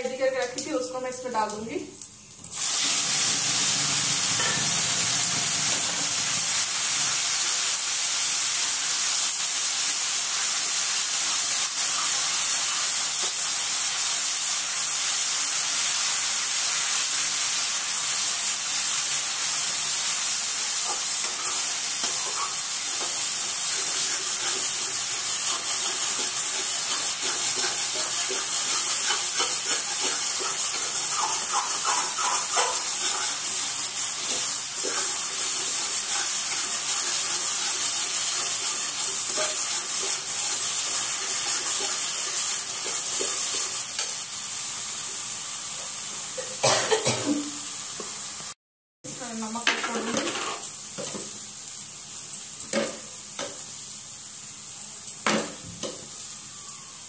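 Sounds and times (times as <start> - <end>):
spices sizzling in hot oil: 0.0 - 57.0
spatula scraping a pan: 20.8 - 43.8.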